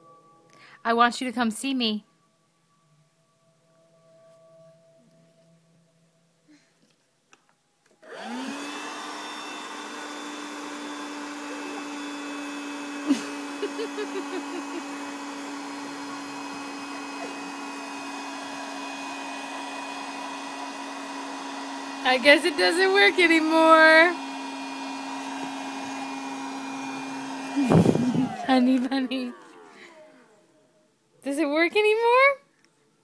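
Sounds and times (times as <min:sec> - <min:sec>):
electric motor whirring: 0:08.1 - 0:30.4.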